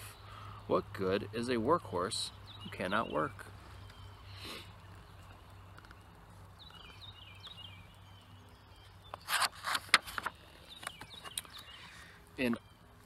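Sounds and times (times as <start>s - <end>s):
book page turning: 9.2s - 11.4s
paper rustling: 9.2s - 11.4s
faint bird chirps: 10.2s - 13.0s.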